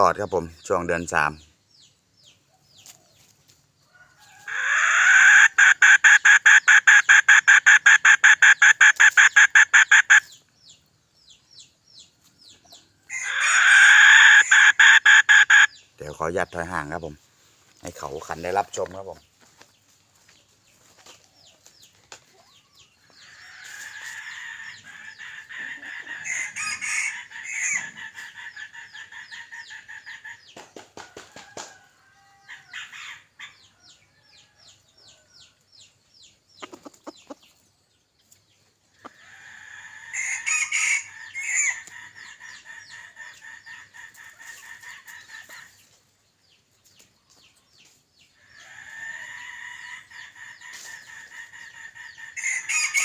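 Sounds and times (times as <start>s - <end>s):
rooster crowing: 3.9s - 10.2s, 13.1s - 15.7s, 23.2s - 28.0s, 31.4s - 32.9s, 39.2s - 41.8s, 52.4s - 53.0s
rooster clucking: 4.2s - 10.3s, 13.0s - 17.0s, 23.2s - 30.6s, 36.6s - 37.6s, 48.9s - 53.0s.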